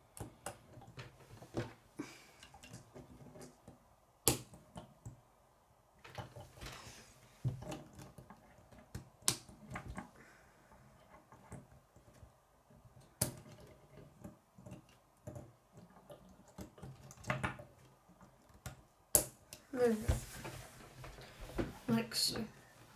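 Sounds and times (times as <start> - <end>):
plastic pieces snapping together: 4.2 - 4.9, 7.6 - 10.1.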